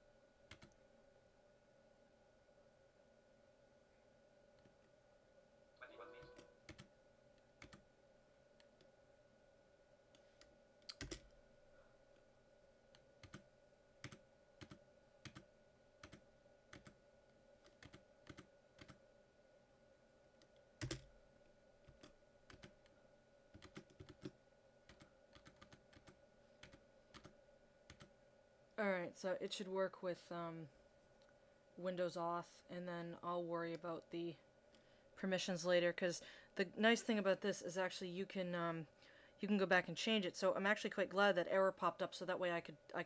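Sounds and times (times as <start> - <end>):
faint hum: 0.0 - 43.0
keyboard keys clicking: 7.6 - 7.8, 10.8 - 11.3, 17.7 - 19.0, 20.8 - 21.1, 23.6 - 24.3, 24.9 - 27.3.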